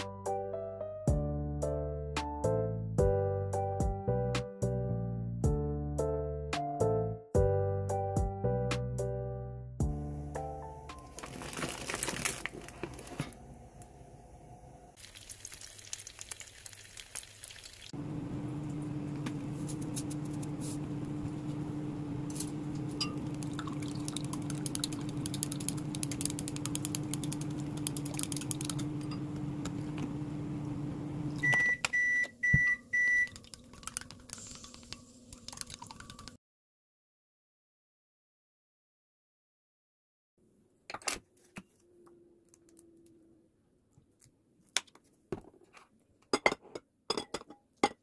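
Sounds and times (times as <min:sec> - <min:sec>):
microwave humming: 0:09.8 - 0:15.0, 0:18.0 - 0:34.3
plastic packaging crinkling: 0:11.0 - 0:13.3.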